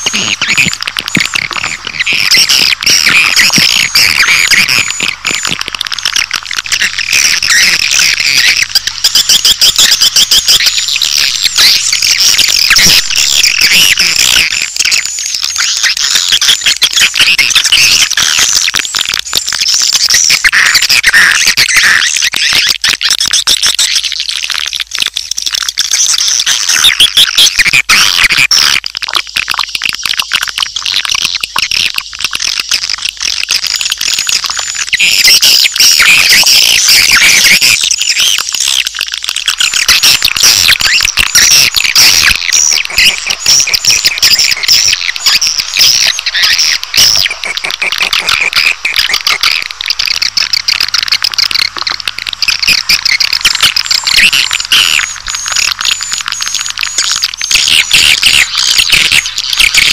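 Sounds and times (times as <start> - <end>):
high-pitched bird chirping: 0.0 - 18.8, 39.4 - 59.9.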